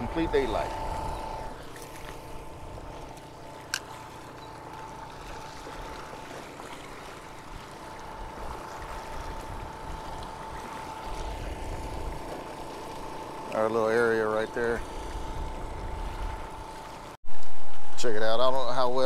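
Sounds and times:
generator humming: 0.0s - 19.0s.

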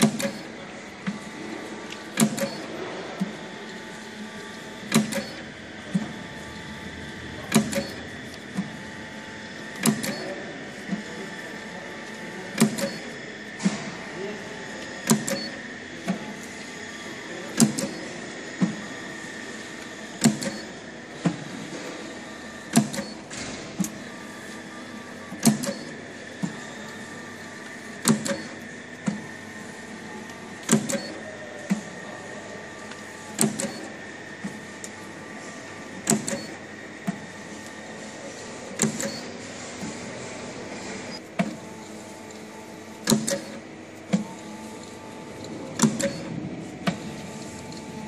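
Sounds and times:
printer clacking and clicking: 0.0s - 3.8s, 4.4s - 6.5s, 7.3s - 9.0s, 9.7s - 11.2s, 12.0s - 13.9s, 14.7s - 16.7s, 17.4s - 18.9s, 19.6s - 24.5s, 25.3s - 27.0s, 27.6s - 29.2s, 30.2s - 32.1s, 32.8s - 35.0s, 35.9s - 37.8s, 38.7s - 40.0s, 41.1s - 48.0s
steady motor whine: 0.0s - 48.0s.

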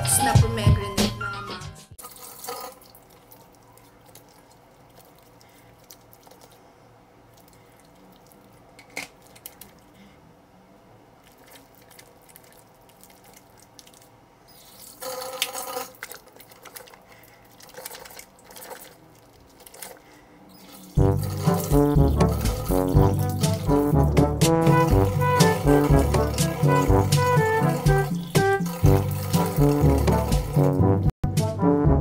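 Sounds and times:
wet soap lathering: 2.0s - 10.0s, 11.2s - 30.9s
water dripping into sink: 11.2s - 14.1s
water splashing: 11.2s - 31.0s.

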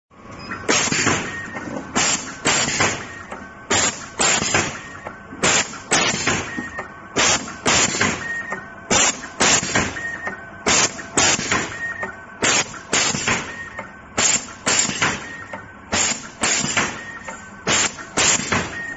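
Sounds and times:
sharp mechanical machine strokes: 3.7s - 6.5s, 8.9s - 9.8s, 14.2s - 15.2s, 15.9s - 18.6s.

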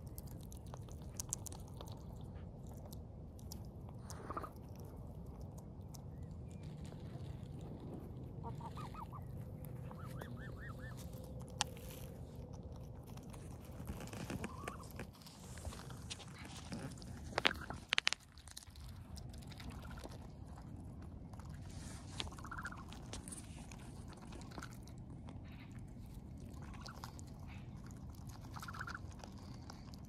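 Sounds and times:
young waterfowl calling: 8.4s - 11.2s, 22.3s - 22.9s, 28.5s - 29.0s.

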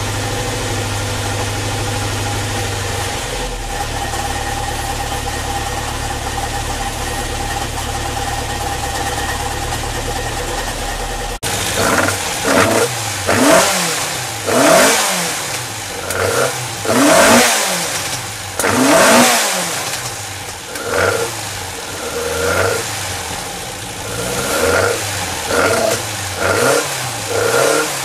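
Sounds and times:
engine revving: 0.0s - 28.0s.

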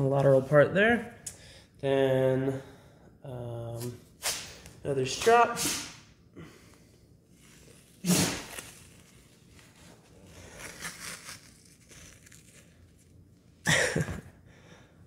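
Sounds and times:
tape rustling: 7.3s - 13.3s
tape tearing off roll: 7.4s - 13.1s.

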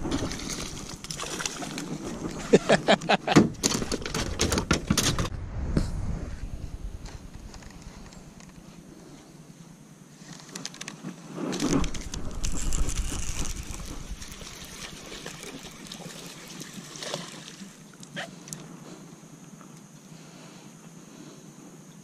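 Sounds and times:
wind on microphone: 1.6s - 8.7s, 11.5s - 15.2s
microphone handling noise: 2.0s - 8.7s, 11.4s - 14.5s.

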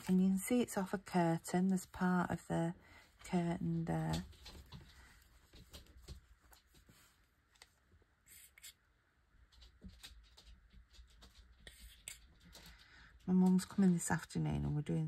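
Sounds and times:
small taps and ticks: 4.1s - 6.9s, 9.5s - 14.0s.

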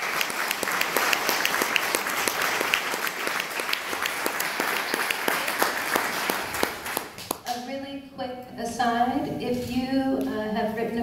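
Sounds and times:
audience applause: 0.0s - 7.4s
sharp hand claps nearby: 0.0s - 7.6s.

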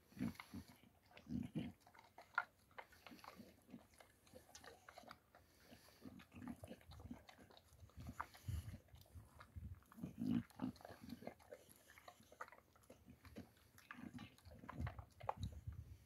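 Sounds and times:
dog crunching dry kibble: 0.1s - 16.0s.

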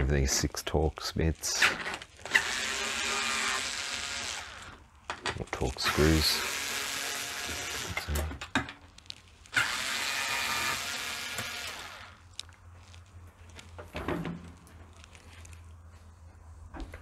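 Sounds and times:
cordless screwdriver whirring: 2.2s - 4.8s, 5.9s - 8.2s, 9.5s - 12.2s.

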